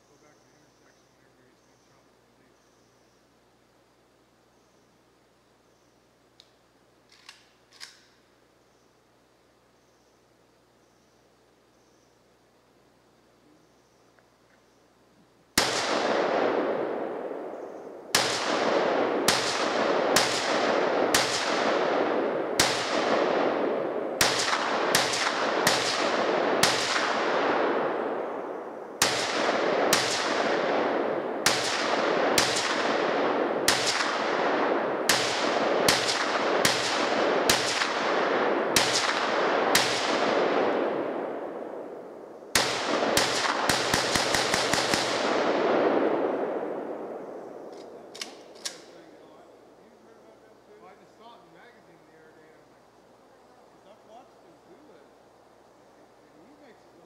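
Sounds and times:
rifle shots with echo: 15.5 - 49.6.

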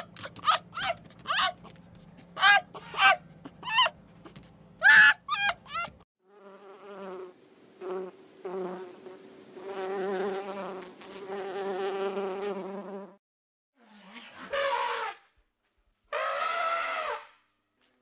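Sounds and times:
flying insect buzzing: 6.2 - 13.2.

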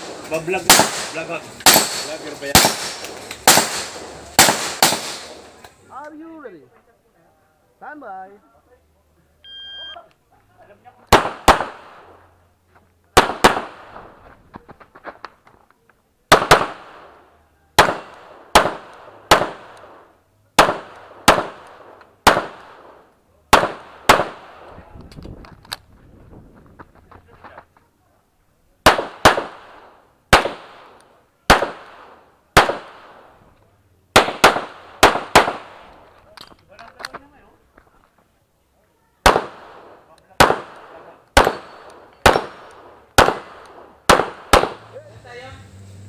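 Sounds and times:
pistol shots with echo: 0.0 - 5.5, 11.1 - 12.2, 13.2 - 14.1, 16.3 - 24.7, 28.8 - 33.4, 34.1 - 35.9, 39.2 - 44.9.

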